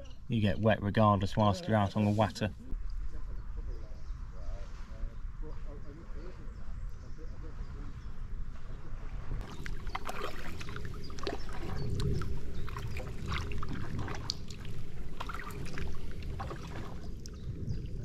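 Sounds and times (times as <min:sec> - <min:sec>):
paddle splashing water: 0:09.4 - 0:18.0.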